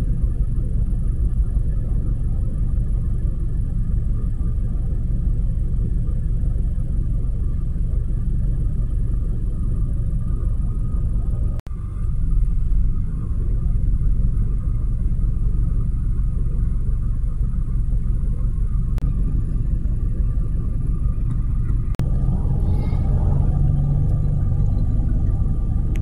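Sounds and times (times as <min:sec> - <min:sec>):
faint steady hum: 0:00.0 - 0:26.0
vehicle engine rumbling: 0:00.0 - 0:26.0.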